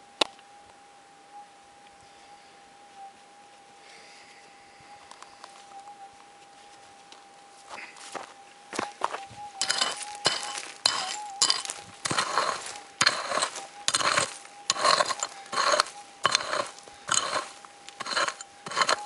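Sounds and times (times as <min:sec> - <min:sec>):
metal detector hum: 0:00.0 - 0:19.0
pick-mattock striking rocky soil: 0:09.5 - 0:19.0.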